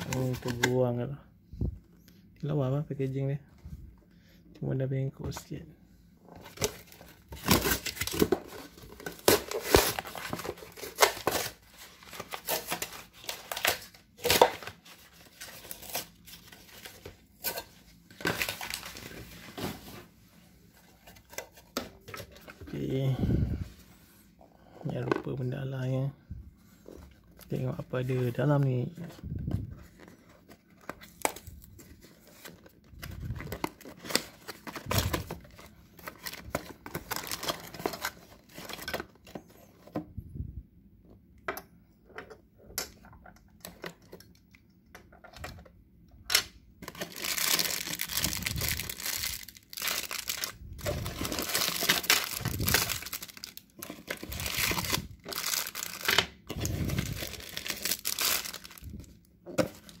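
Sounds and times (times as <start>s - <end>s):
plastic bags crinkling: 33.0s - 38.9s, 46.9s - 60.0s.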